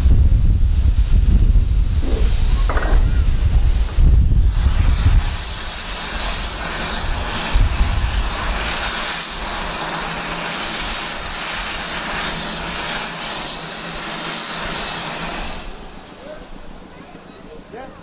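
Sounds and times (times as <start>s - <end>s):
steam hissing from safety valves: 0.0s - 18.0s
low thumps: 1.7s - 4.4s.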